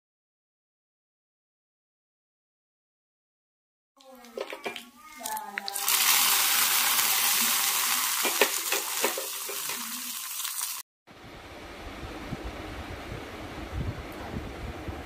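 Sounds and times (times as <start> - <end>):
hot oil sizzling with pops: 4.3 - 10.8.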